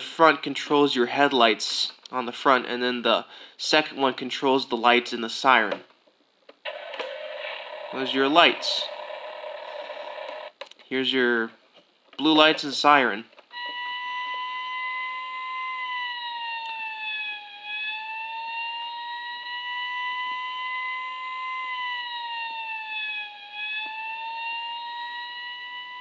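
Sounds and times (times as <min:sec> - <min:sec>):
toy fire truck siren wailing: 0:06.7 - 0:10.5, 0:13.5 - 0:26.0.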